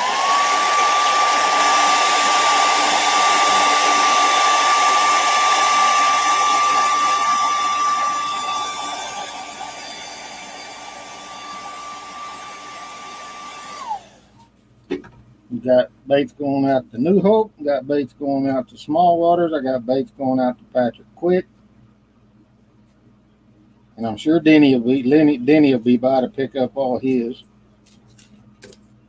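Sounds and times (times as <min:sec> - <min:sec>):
hair dryer blowing: 0:00.0 - 0:14.4.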